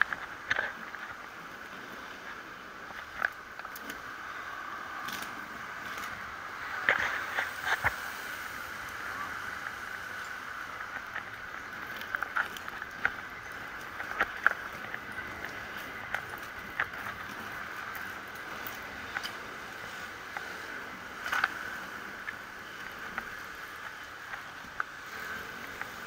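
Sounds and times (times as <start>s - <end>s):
bicycle clicks and rattles: 0.0s - 26.0s
bicycle riding rushing noise: 0.0s - 26.0s.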